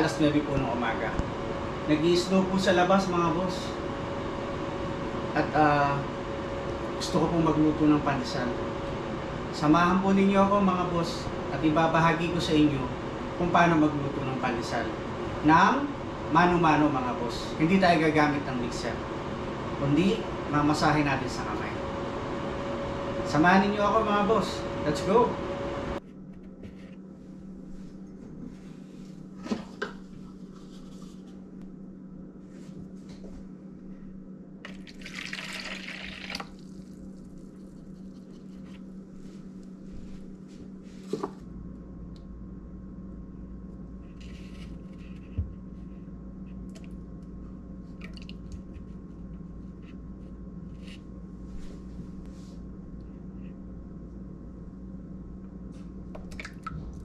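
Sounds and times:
steady low hum: 0.0s - 57.0s
liquid pouring into plastic bowl: 34.7s - 37.7s.

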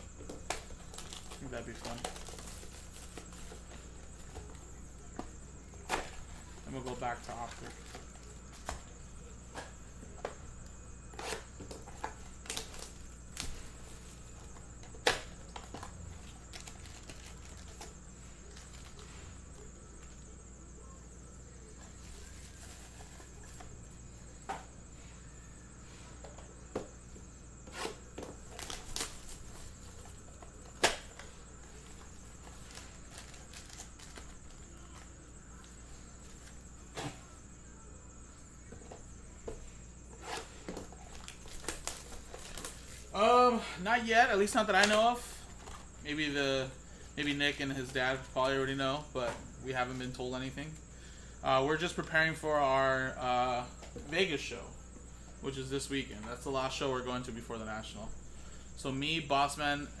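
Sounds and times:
card packaging crinkling and ripping: 0.4s - 4.5s, 12.0s - 14.0s, 15.0s - 19.0s, 28.4s - 35.1s, 40.3s - 43.2s.

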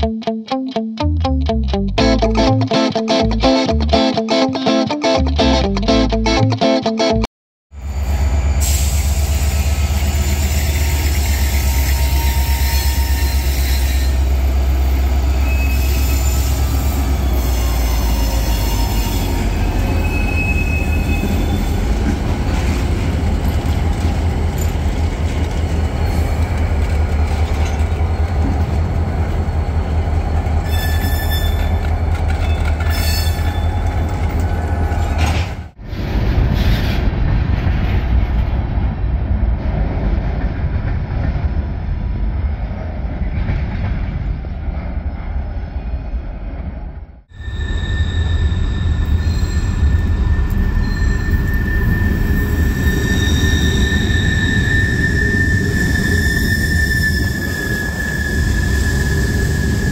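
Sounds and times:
diesel locomotives rumbling: 7.8s - 59.9s
wheels clacking on rails: 9.2s - 35.7s
wheels squealing: 9.9s - 24.8s, 25.4s - 35.2s, 47.3s - 59.9s
freight cars rolling: 14.4s - 38.8s.

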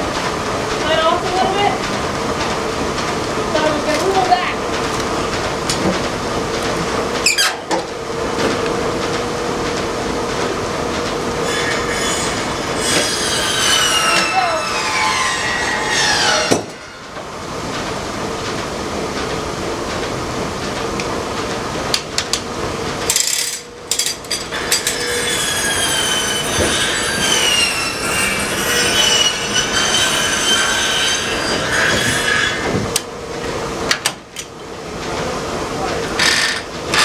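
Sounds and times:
circular saw whining through log: 11.4s - 17.1s, 24.5s - 32.7s.

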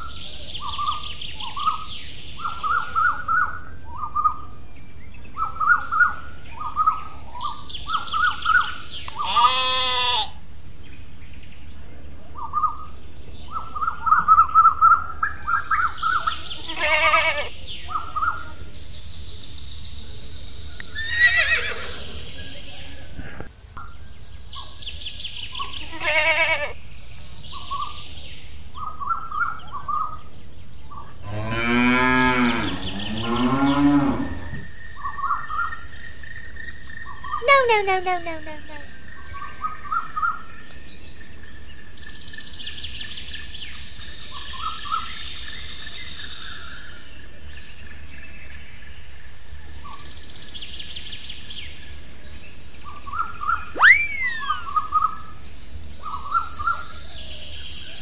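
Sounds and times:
small birds chirping: 0.0s - 31.5s, 32.1s - 58.0s
high-pitched animal calls: 9.2s - 10.4s, 37.4s - 38.9s, 53.8s - 54.9s
cow mooing: 31.3s - 34.5s.

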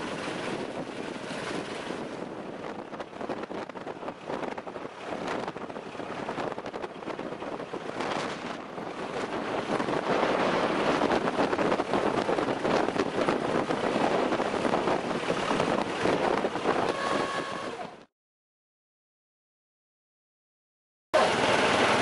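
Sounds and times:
road noise: 0.0s - 18.1s, 21.2s - 22.0s
wind rushing over microphone: 0.0s - 18.1s.

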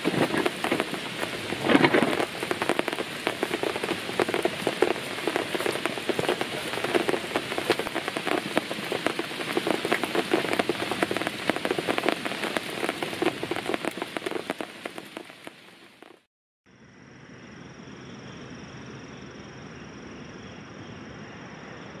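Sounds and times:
steady hiss: 0.0s - 16.2s
rain pattering on rock and leaves: 0.0s - 16.3s.

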